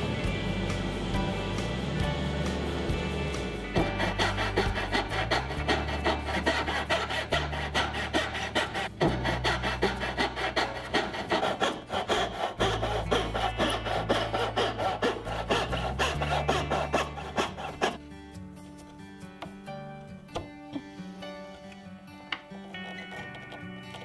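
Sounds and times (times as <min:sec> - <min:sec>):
hand saw rasping through wood: 0:03.7 - 0:18.0, 0:22.5 - 0:24.0.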